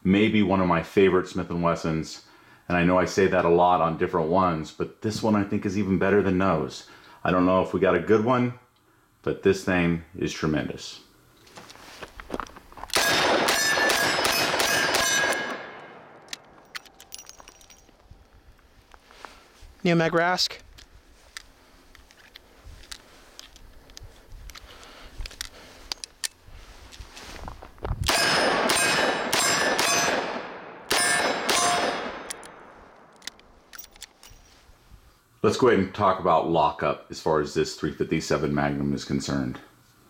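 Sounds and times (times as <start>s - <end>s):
steel targets ringing: 13.0s - 17.9s, 28.1s - 32.3s.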